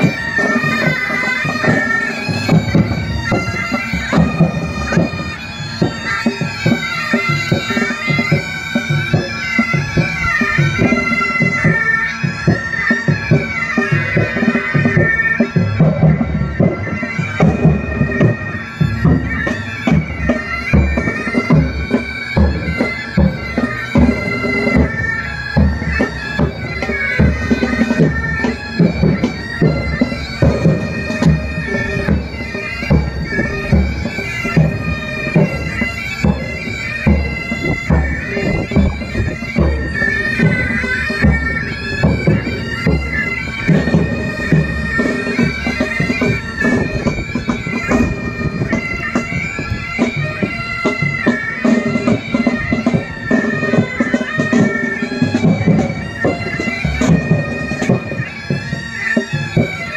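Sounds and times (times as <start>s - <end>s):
bagpipes playing: 0.0s - 59.9s.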